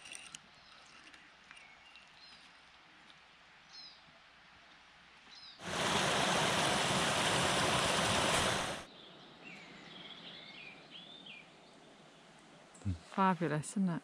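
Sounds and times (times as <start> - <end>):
faint birdsong: 0.3 - 2.8, 3.6 - 4.1, 5.3 - 5.6, 8.8 - 13.3
stream rushing over rocks: 5.6 - 8.9.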